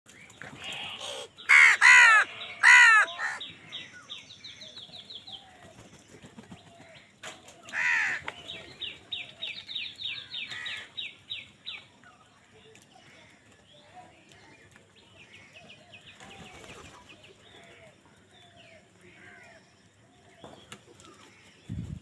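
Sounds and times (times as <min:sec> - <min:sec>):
crows cawing: 0:00.6 - 0:03.4, 0:07.7 - 0:08.4, 0:10.2 - 0:11.0.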